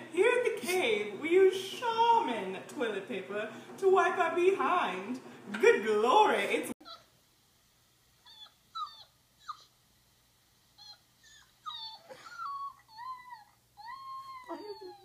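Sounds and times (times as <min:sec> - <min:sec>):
dog whimpering: 0:06.8 - 0:07.1, 0:08.2 - 0:09.8, 0:10.8 - 0:15.0.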